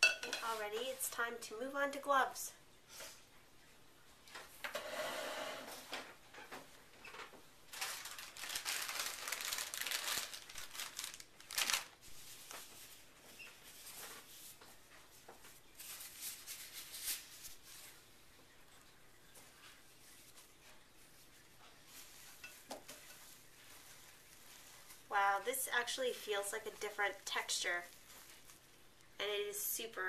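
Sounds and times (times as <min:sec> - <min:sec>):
disposable gloves rustling: 0:06.1 - 0:29.8
plastic package crinkling: 0:07.7 - 0:12.9.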